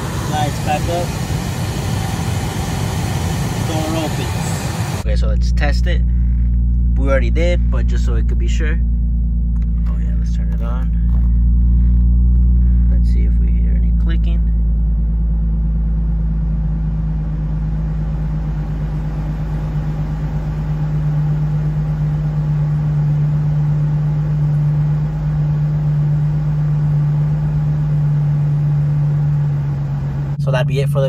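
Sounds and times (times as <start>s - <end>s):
cabin fan humming: 0.0s - 5.0s, 17.1s - 30.4s
car engine idling: 0.0s - 31.0s.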